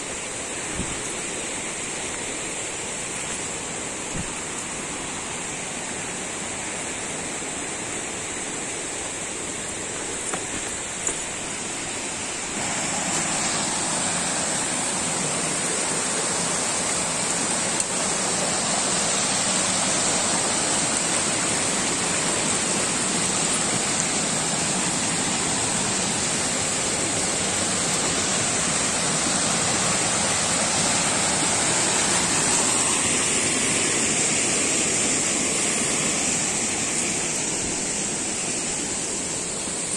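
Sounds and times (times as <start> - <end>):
steady high hiss: 0.0 - 39.9
stream rushing over rocks: 0.0 - 39.9.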